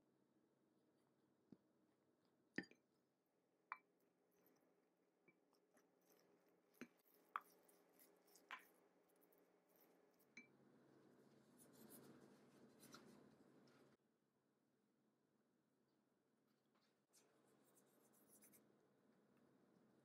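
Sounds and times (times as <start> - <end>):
spoon scraping and mashing dough: 3.8 - 10.5, 11.2 - 14.0.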